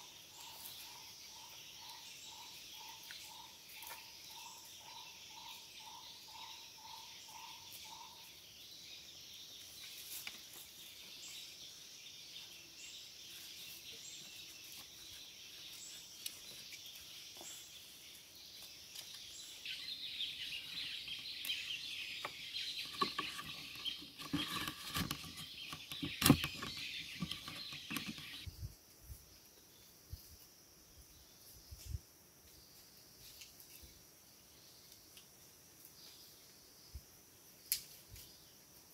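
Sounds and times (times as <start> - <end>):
insects buzzing: 0.0 - 28.5
knocks and rustles handling bamboo: 22.2 - 28.5.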